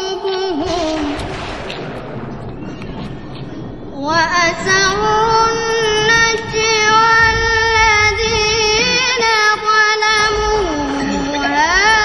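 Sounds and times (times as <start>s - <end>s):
boy chanting melodic recitation: 0.0s - 1.3s, 4.0s - 12.0s.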